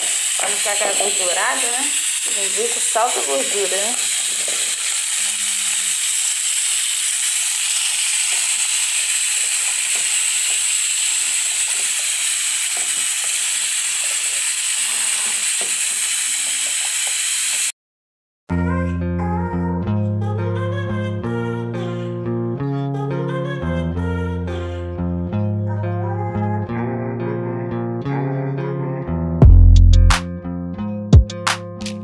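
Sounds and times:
vegetables sizzling in fat: 0:00.0 - 0:17.7
guitar music: 0:18.5 - 0:32.0.

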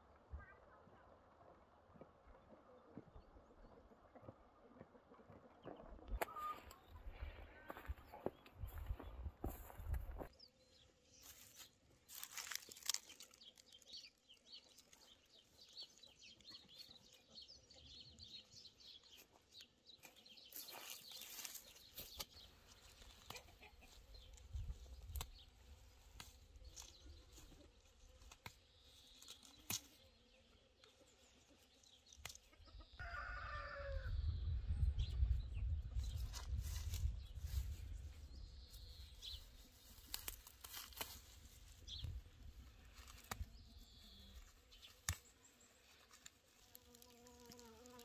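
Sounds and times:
small birds chirping: 0:05.6 - 0:33.0, 0:34.0 - 0:48.0
chickens clucking: 0:23.0 - 0:24.4
rooster crowing: 0:33.0 - 0:34.1.

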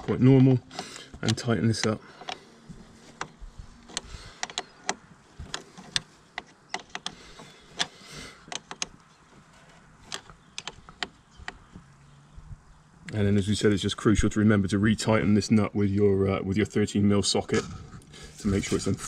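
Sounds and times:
spanner clicking on nut: 0:03.2 - 0:09.1, 0:10.0 - 0:11.6.

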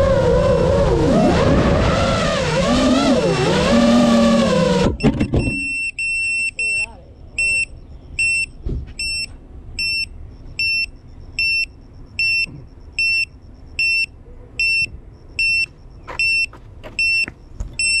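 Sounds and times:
electronic buzzer beeping: 0:05.0 - 0:18.0.

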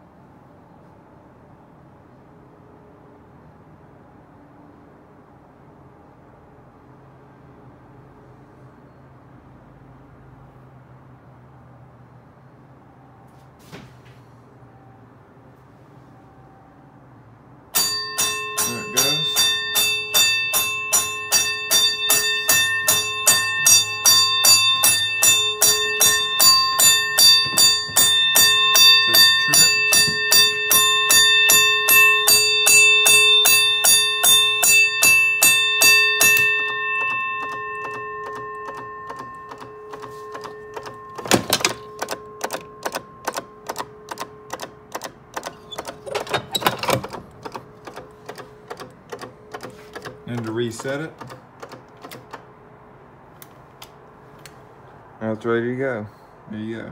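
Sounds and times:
fire alarm bell ringing: 0:17.7 - 0:51.4
sharp knocks on metal boxes: 0:20.5 - 0:31.7, 0:36.2 - 0:48.9
rapid ticking: 0:37.0 - 0:46.1.

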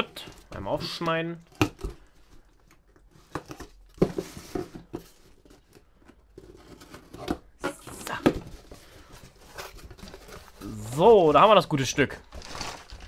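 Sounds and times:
cardboard knocks and scrapes: 0:03.2 - 0:05.8.

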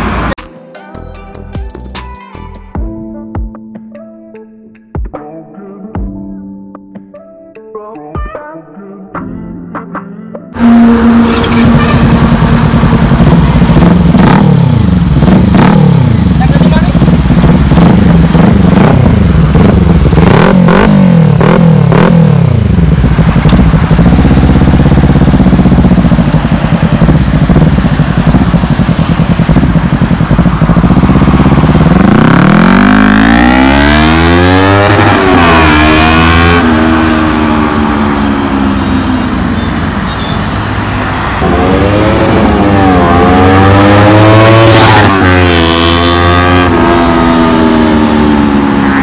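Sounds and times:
motorcycle engine accelerating: 0:10.6 - 0:49.0
exhaust crackling pops: 0:23.2 - 0:24.0.

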